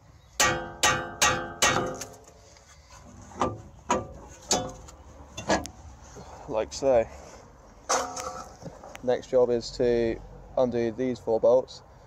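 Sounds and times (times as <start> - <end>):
hammer striking metal: 0.4 - 2.3.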